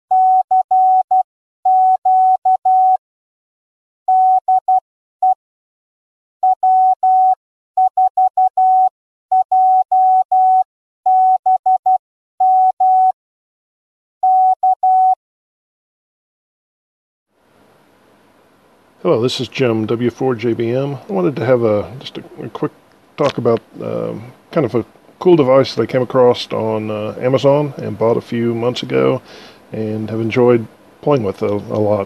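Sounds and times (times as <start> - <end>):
morse code tone: 0.1 - 3.0, 6.4 - 13.2, 14.2 - 15.2.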